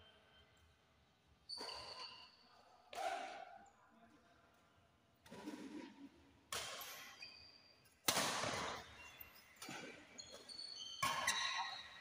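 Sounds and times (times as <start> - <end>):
shoes squeaking on court: 1.5 - 2.4, 8.7 - 12.0
rackets hitting shuttlecock: 6.5 - 7.2, 8.0 - 8.9, 9.6 - 11.7.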